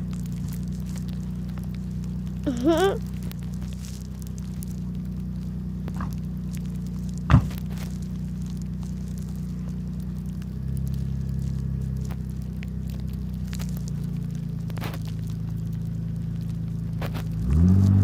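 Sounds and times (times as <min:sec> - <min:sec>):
car engine idling: 0:00.0 - 0:18.0
car door thump: 0:07.3 - 0:07.5.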